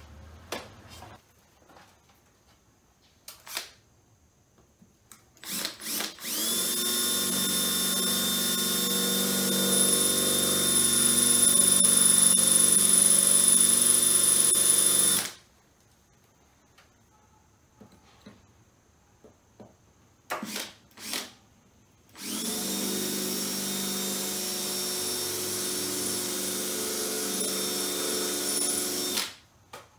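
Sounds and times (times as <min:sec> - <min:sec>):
power tool motor whining: 0:05.5 - 0:15.4, 0:22.2 - 0:29.3.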